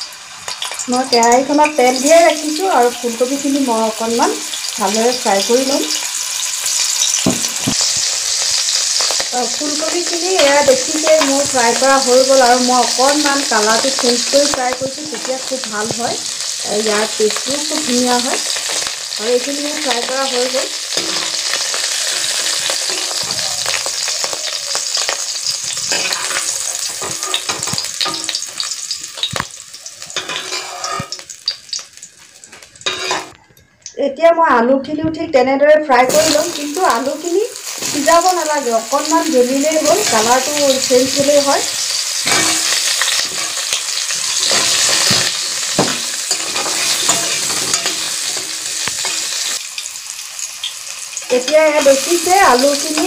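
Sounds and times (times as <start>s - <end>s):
vegetables sizzling in hot oil: 0.0s - 33.4s, 35.9s - 53.0s
steel spoon scraping pan: 20.9s - 24.3s, 24.9s - 28.7s, 30.2s - 31.2s, 32.8s - 33.4s, 41.1s - 49.6s.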